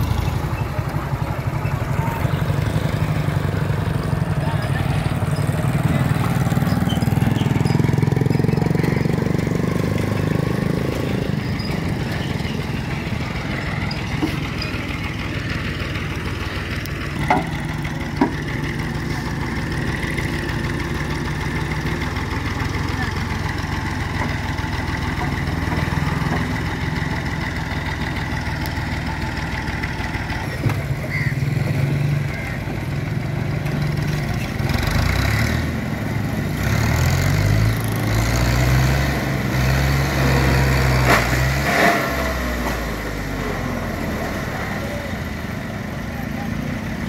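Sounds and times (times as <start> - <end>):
passing motorcycle engine: 0.0 - 13.7
tractor diesel engine running: 0.0 - 47.0.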